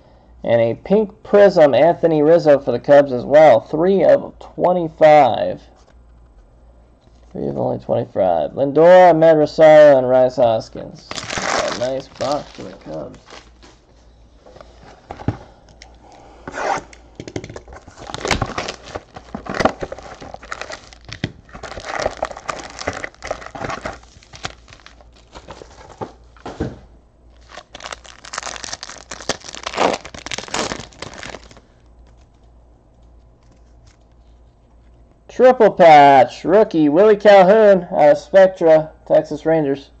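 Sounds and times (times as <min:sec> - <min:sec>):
foil card packs handled: 0:11.1 - 0:13.8, 0:17.6 - 0:26.8, 0:27.4 - 0:32.4
plastic wrapping tearing and crinkling: 0:11.1 - 0:13.8, 0:17.6 - 0:26.5, 0:27.4 - 0:32.4.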